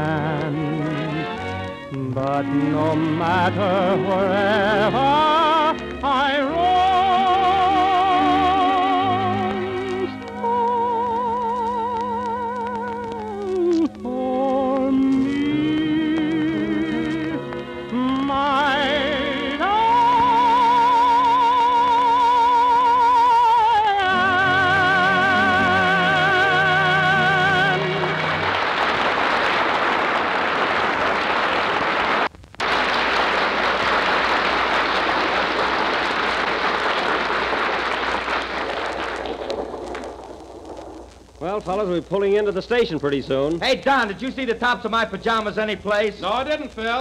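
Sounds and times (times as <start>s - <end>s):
person singing with orchestra: 0.0s - 1.4s, 2.0s - 28.2s.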